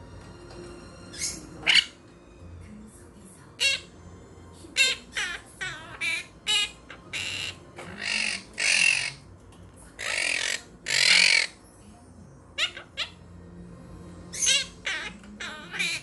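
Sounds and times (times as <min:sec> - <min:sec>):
parrots squawking: 0:01.0 - 0:02.1, 0:03.5 - 0:04.0, 0:04.7 - 0:09.3, 0:10.0 - 0:11.6, 0:12.5 - 0:13.2, 0:14.2 - 0:16.0
parrot chirps: 0:01.1 - 0:02.1, 0:03.6 - 0:04.0, 0:04.8 - 0:09.3, 0:10.0 - 0:11.6, 0:12.5 - 0:13.2, 0:14.2 - 0:16.0.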